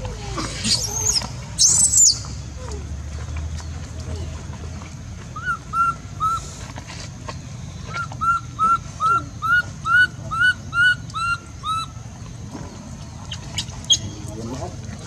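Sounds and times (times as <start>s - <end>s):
animal high calls: 5.4s - 6.5s, 7.9s - 12.0s.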